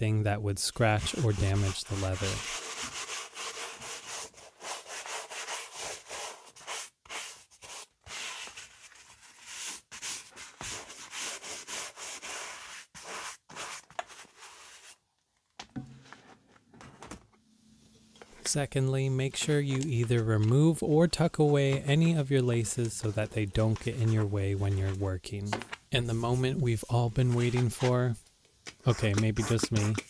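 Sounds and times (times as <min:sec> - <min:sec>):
brush scrubbing a leather shoe: 0:00.7 - 0:15.0, 0:19.4 - 0:25.2, 0:26.0 - 0:28.1, 0:28.9 - 0:30.0.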